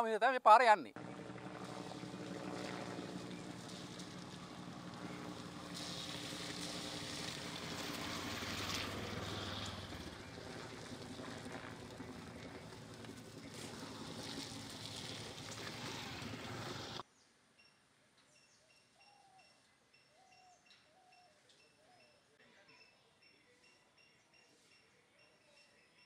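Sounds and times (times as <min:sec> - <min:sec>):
auto-rickshaw engine passing: 0:01.0 - 0:17.0
motor scooter engine passing: 0:01.0 - 0:17.0.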